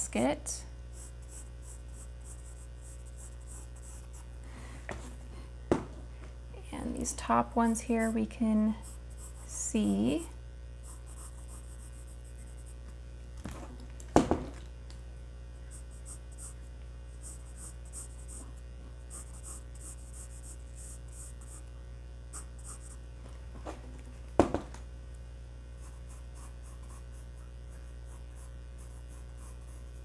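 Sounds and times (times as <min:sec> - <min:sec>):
low electrical hum: 0:00.0 - 0:30.0
pencil scratching on paper: 0:00.9 - 0:04.3, 0:10.8 - 0:12.8, 0:17.2 - 0:18.5, 0:19.1 - 0:21.6, 0:22.3 - 0:23.0, 0:25.8 - 0:30.0
sharp knocks: 0:24.4 - 0:24.8.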